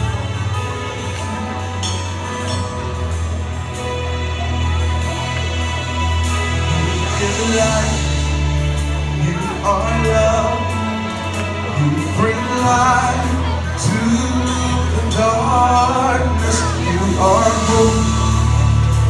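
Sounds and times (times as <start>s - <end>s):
band playing low chords: 0.0s - 19.0s
voices singing worship song: 6.1s - 19.0s.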